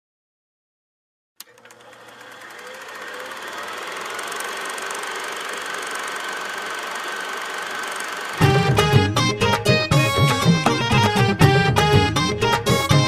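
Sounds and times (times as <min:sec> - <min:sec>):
rapid mechanical clatter: 0:01.4 - 0:08.4.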